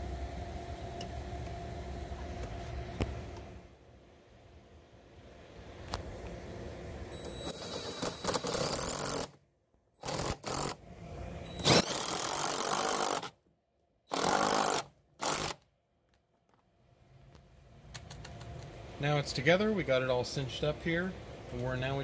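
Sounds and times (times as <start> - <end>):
impact driver tightening screw: 7.6 - 9.4, 10.0 - 10.8, 14.1 - 15.6.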